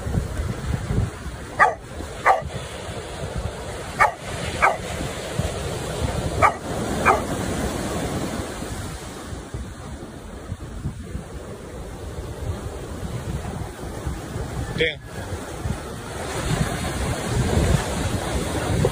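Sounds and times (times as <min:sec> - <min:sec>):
dog barking: 0:01.5 - 0:02.6, 0:04.0 - 0:05.0, 0:06.4 - 0:07.5.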